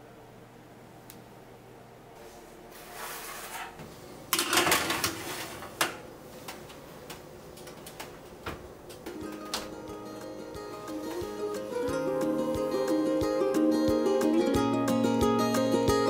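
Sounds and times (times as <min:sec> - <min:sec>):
metal trays scraping on rack: 0:02.8 - 0:03.8, 0:04.5 - 0:05.8.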